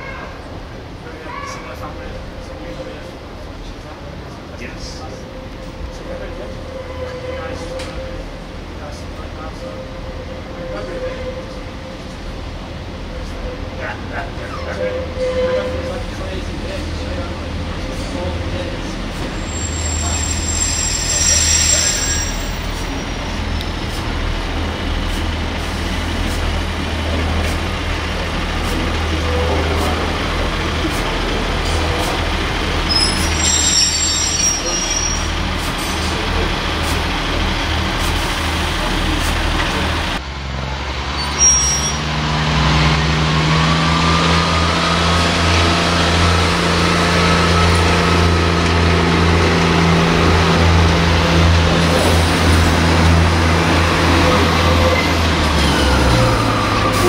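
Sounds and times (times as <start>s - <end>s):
train diesel engine: 0.0s - 57.0s.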